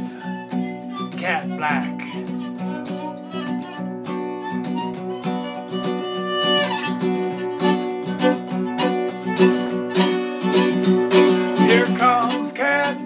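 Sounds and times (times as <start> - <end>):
acoustic guitar strumming: 0.0 - 13.0
fiddle playing held notes: 0.0 - 13.0.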